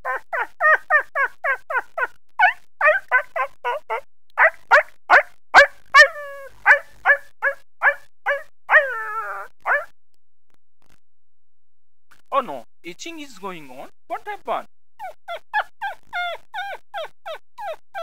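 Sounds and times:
person imitating dog yips: 0.0s - 9.9s, 15.0s - 18.0s.

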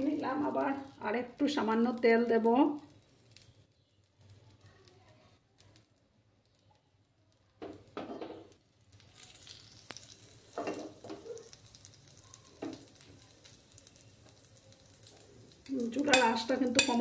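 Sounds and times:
oil sizzling in a wok: 0.0s - 17.0s
wok bumping and scraping on burner: 7.6s - 11.4s, 15.8s - 17.0s.

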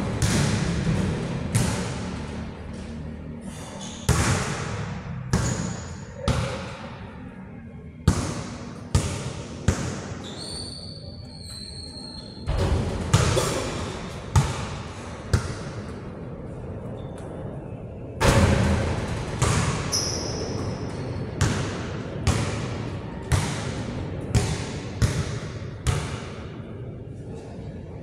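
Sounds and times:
basketballs bouncing on court floor: 4.1s - 6.8s, 8.0s - 10.2s, 12.5s - 13.5s, 14.3s - 15.7s, 19.2s - 26.3s.

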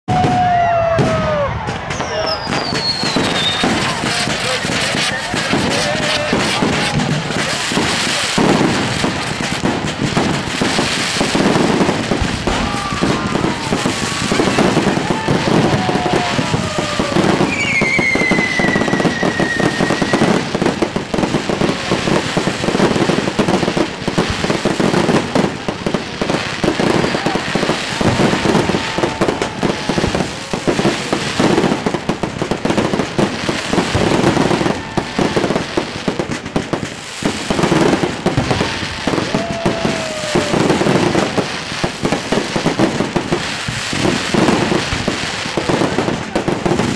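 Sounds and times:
fireworks bangs and crackles: 0.0s - 46.9s
falling high whistle: 0.1s - 3.9s, 15.6s - 20.4s.

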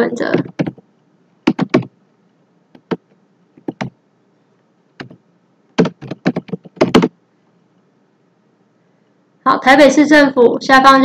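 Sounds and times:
typing on keyboard: 0.4s - 0.8s, 1.5s - 1.9s, 2.8s - 3.0s, 3.6s - 3.9s, 5.8s - 7.1s.

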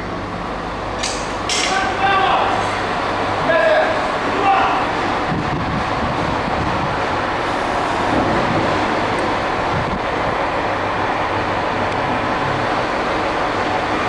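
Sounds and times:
loud rushing noise: 1.4s - 14.0s.

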